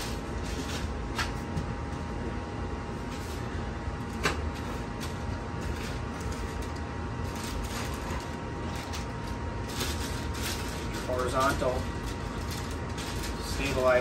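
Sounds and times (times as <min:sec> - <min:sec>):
low background hum: 0:00.0 - 0:14.0
plastic packaging crinkling: 0:04.4 - 0:14.0.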